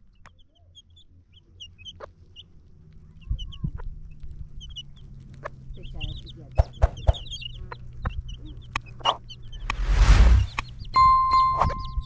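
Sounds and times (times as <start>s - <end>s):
chickens clucking and chirping: 0.0s - 9.8s, 10.4s - 12.0s.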